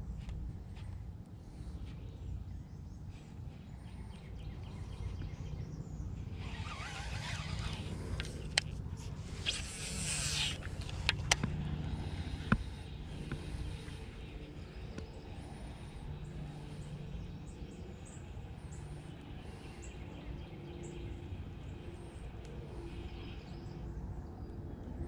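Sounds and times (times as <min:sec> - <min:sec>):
fishing reel clicks: 0:06.4 - 0:11.4
fishing line hissing: 0:06.4 - 0:12.8.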